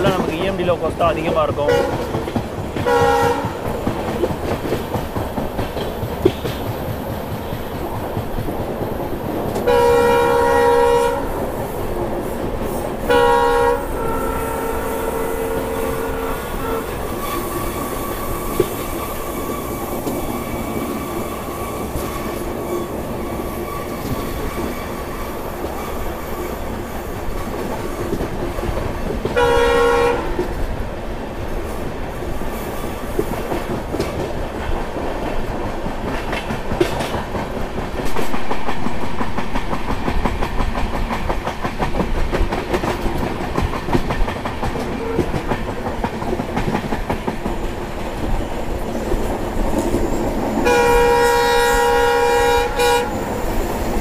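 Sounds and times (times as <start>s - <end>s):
train wheels clacking on rails: 0.0s - 54.0s
train horn blasts: 1.7s - 2.1s, 2.8s - 3.6s, 9.6s - 11.4s, 13.0s - 17.5s, 29.4s - 30.5s, 45.0s - 45.4s, 50.6s - 53.4s.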